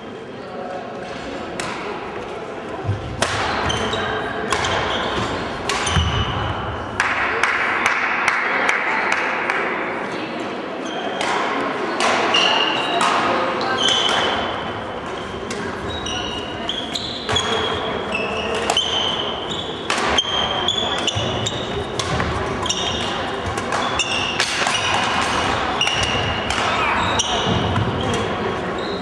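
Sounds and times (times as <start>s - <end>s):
background chatter: 0.0s - 29.0s
court shoes squeaking: 2.8s - 6.6s, 10.8s - 11.4s, 12.0s - 29.0s
racket striking shuttlecock: 4.5s - 4.9s, 5.6s - 6.3s, 19.9s - 28.3s.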